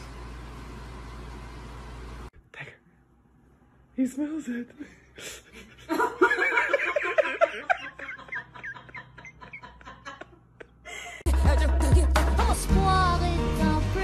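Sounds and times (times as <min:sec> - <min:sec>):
person laughing: 0:05.2 - 0:11.3
music: 0:11.3 - 0:14.0.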